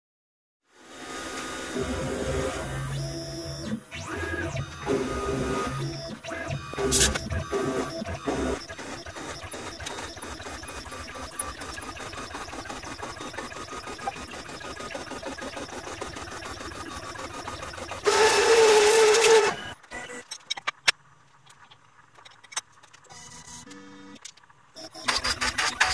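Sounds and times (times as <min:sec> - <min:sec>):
vacuum cleaner whining: 0:01.0 - 0:19.8
cnc router whirring: 0:01.0 - 0:20.2.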